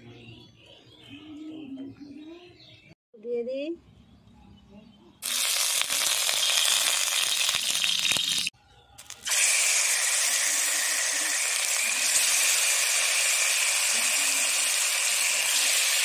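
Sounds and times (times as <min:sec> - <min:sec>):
fish frying in sizzling oil: 0:05.2 - 0:16.0.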